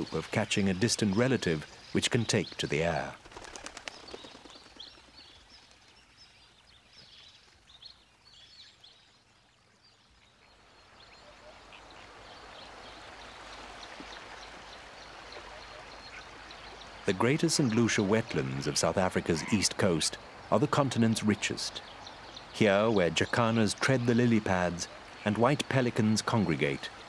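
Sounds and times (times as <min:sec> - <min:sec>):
small birds chirping: 0:00.0 - 0:27.0
steady hiss: 0:11.0 - 0:27.0.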